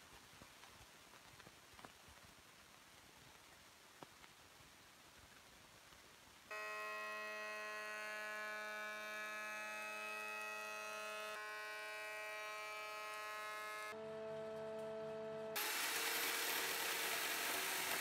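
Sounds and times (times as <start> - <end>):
planer machine whine: 6.5 - 18.0.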